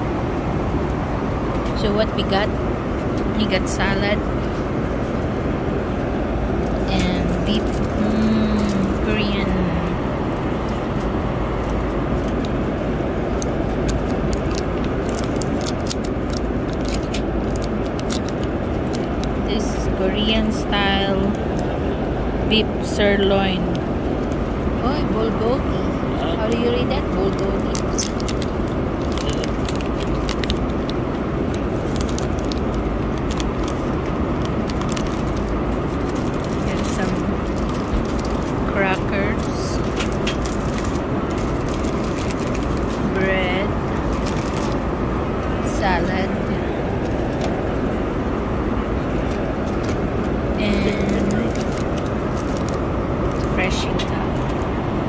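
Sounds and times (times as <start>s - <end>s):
airliner cabin noise: 0.0s - 55.0s
plastic film crackling: 6.6s - 21.7s, 26.4s - 54.8s
foil lid crinkling: 27.7s - 38.7s, 39.4s - 43.1s, 44.0s - 44.8s, 51.0s - 53.5s.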